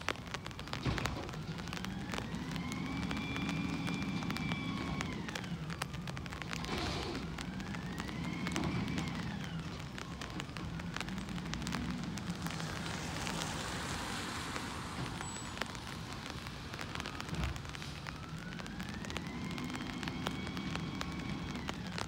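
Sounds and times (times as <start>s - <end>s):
steady crackling hiss: 0.0s - 22.0s
engine whine rising and falling: 1.2s - 22.0s.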